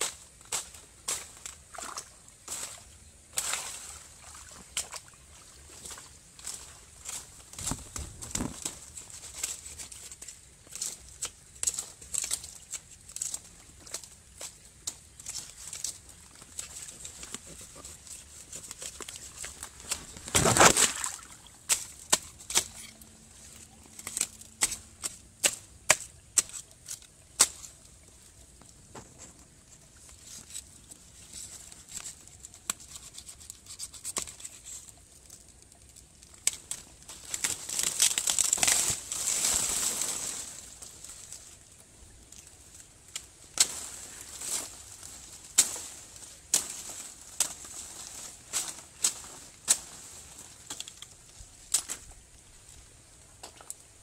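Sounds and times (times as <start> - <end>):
rustling leaves and grass: 0.0 - 54.0
knife clicks and stems snapping: 51.7 - 52.0.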